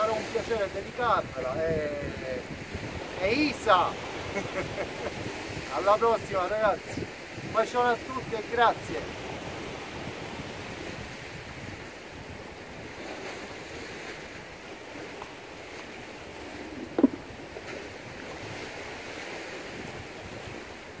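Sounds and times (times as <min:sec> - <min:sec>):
rough sea washing on rocks: 0:00.0 - 0:21.0
wind buffeting microphone: 0:00.0 - 0:21.0
short knock: 0:16.8 - 0:17.2.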